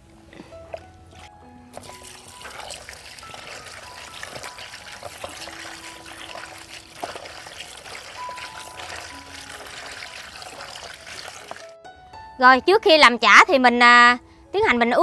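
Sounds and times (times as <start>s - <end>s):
hands squishing wet food: 0.4s - 11.8s
tap water running: 1.2s - 11.8s.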